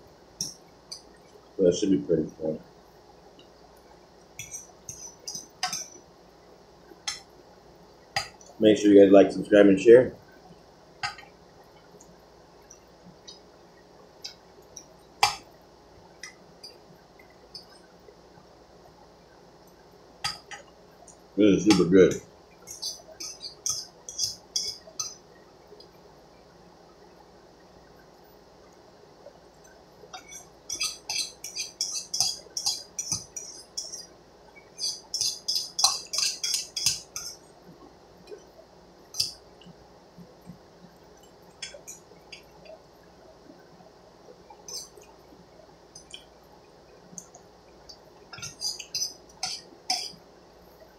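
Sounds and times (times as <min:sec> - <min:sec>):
metal spoon scraping a pot: 0:04.4 - 0:06.0, 0:22.7 - 0:25.2, 0:30.2 - 0:34.1, 0:34.8 - 0:37.4, 0:48.4 - 0:50.2.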